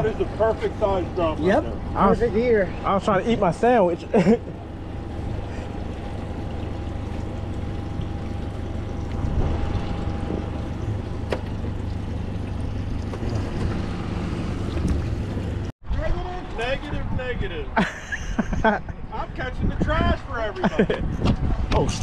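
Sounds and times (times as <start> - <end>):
outboard motor idling: 0.0 - 15.7.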